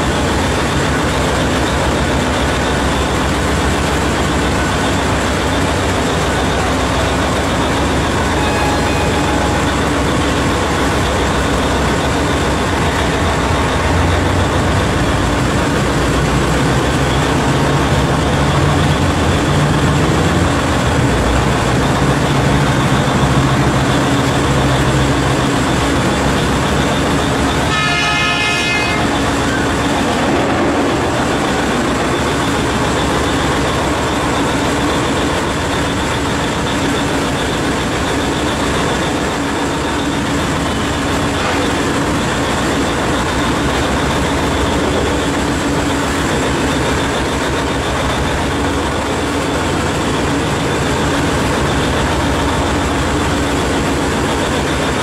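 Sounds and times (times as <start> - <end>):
heavy machinery rumble: 0.0 - 55.0
horn blast: 7.8 - 11.7, 27.2 - 33.4.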